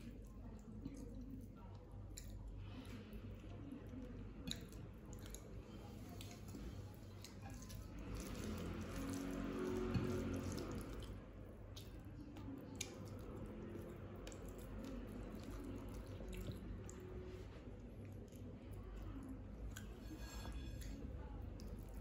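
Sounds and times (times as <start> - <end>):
chewing: 0.0 - 22.0
low steady hum: 0.0 - 22.0
fingers squeezing wet food: 7.3 - 17.3.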